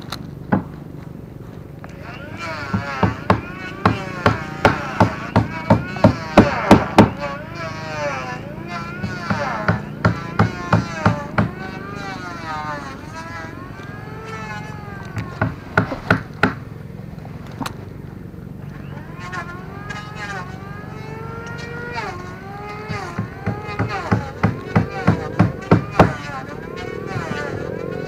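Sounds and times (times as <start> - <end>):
low drone: 0.0 - 28.0
wavering melodic line: 18.7 - 28.0
sharp percussion hits: 20.8 - 28.0.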